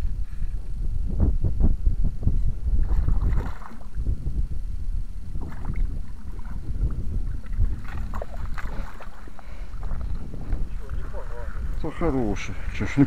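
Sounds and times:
wind rumble on microphone: 0.0 - 13.0
fish splashing in water: 2.8 - 4.0, 7.3 - 10.1.

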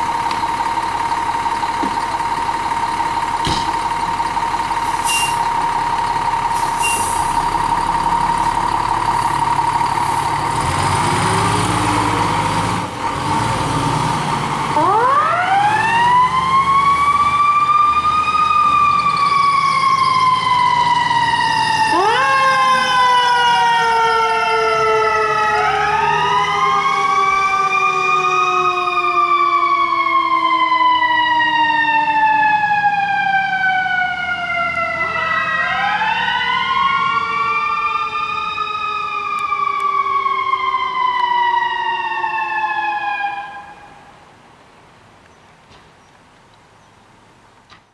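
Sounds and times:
second siren: 0.0 - 12.6, 14.6 - 44.3
wailing siren: 0.0 - 13.4, 14.3 - 44.3
truck engine rumble: 0.0 - 47.9.

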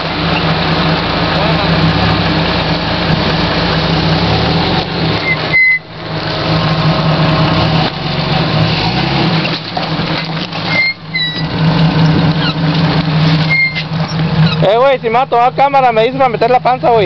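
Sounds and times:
engine running at low speed: 0.0 - 17.0
short high squeaks: 5.2 - 5.9, 10.6 - 12.6, 13.3 - 14.7.

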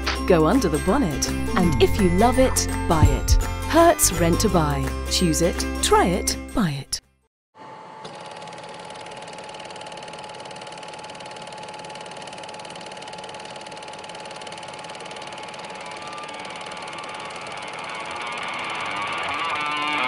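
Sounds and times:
film projector clatter: 8.1 - 19.3.

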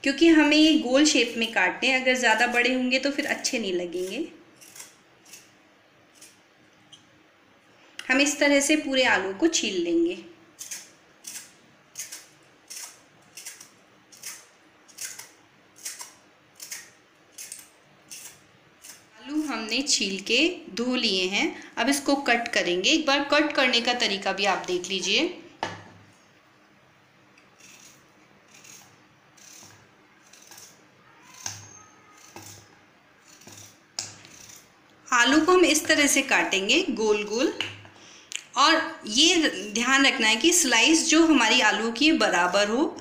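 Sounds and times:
vegetable peeler scraping potato: 1.0 - 6.4, 10.6 - 19.7, 27.4 - 37.6.

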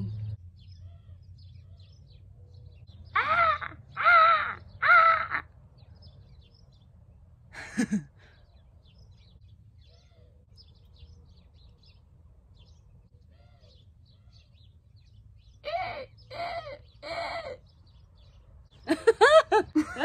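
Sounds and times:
small birds chirping: 0.0 - 20.0
crow cawing: 3.2 - 5.6.

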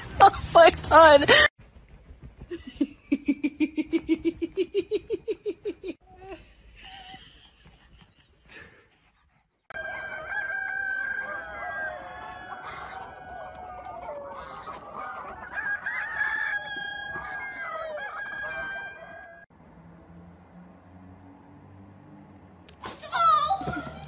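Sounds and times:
chickens clucking: 9.7 - 19.0
roosters crowing: 9.7 - 19.5.

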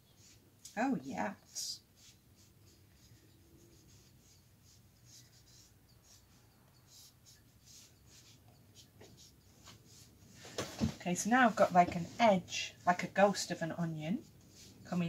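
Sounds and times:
pad rubbing on paper: 1.4 - 10.4, 11.2 - 12.5, 14.2 - 14.9.

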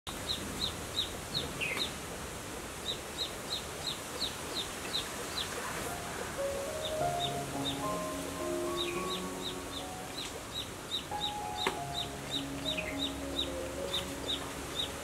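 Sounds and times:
bird chirping: 0.1 - 2.0, 2.8 - 15.0
outdoor background hiss: 0.1 - 15.0
faint music: 5.2 - 15.0.

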